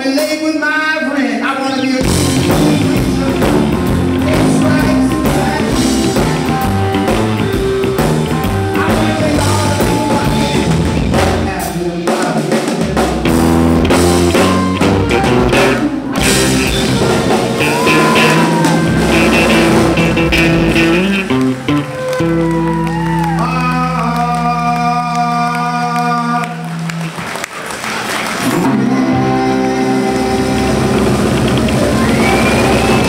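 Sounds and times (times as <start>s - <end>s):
live blues band: 1.4s - 33.0s
electric guitar lead: 1.7s - 11.7s, 12.9s - 25.3s, 28.4s - 33.0s.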